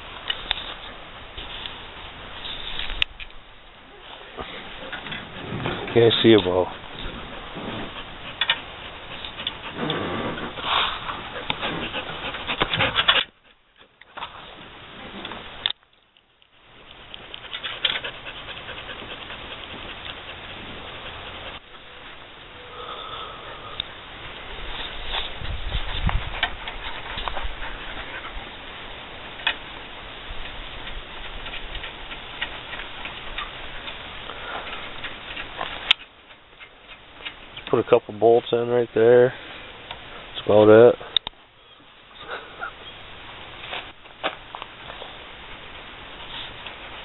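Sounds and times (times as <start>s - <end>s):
steady hiss: 0.0s - 47.0s.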